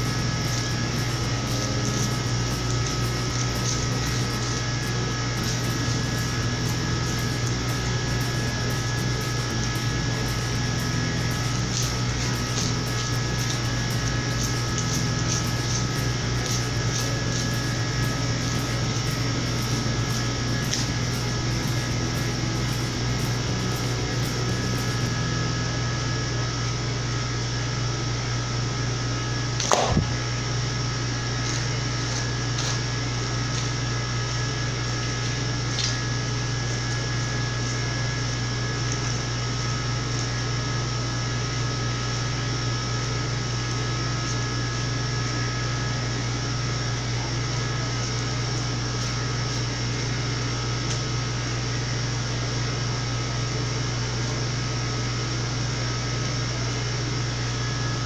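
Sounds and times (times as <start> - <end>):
thin steady whining tones: 0.0 - 27.2
machine hum with low drone: 0.0 - 58.0.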